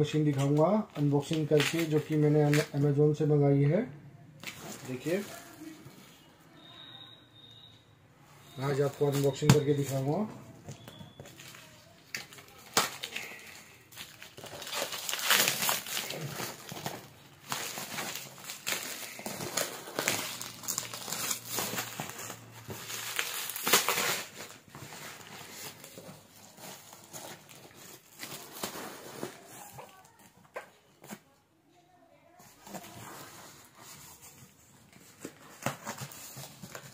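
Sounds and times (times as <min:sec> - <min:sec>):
plastic wrap crinkling: 0:00.0 - 0:03.2, 0:04.4 - 0:07.5, 0:08.5 - 0:31.4, 0:32.3 - 0:36.9
plastic wrap snapping: 0:00.1 - 0:02.8, 0:10.7 - 0:31.2.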